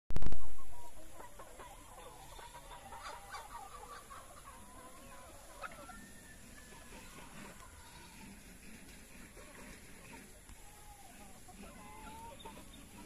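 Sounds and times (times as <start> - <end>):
chickens clucking: 0.2 - 13.0.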